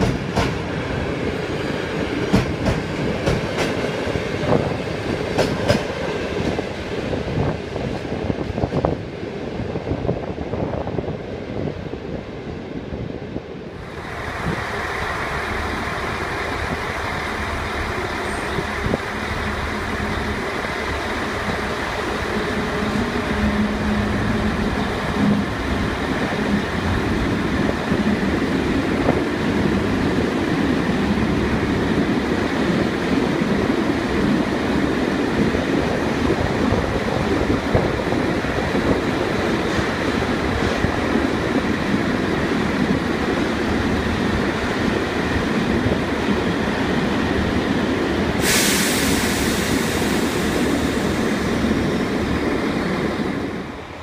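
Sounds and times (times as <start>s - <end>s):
train wheels rolling over rails: 0.0s - 12.1s, 13.7s - 54.0s
diesel locomotive engine hum: 0.0s - 54.0s
sudden hiss: 48.4s - 51.5s.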